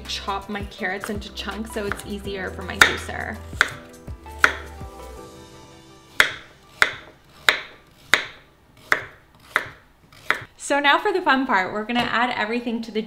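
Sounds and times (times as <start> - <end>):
soft background music: 0.0 - 13.0
knife chopping carrot on board: 1.8 - 4.8, 6.1 - 10.5.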